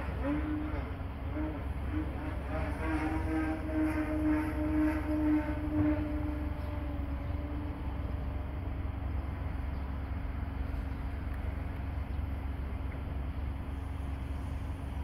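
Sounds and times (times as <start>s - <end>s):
model plane propeller drone: 0.0s - 9.4s
steady low rumble: 0.0s - 15.0s.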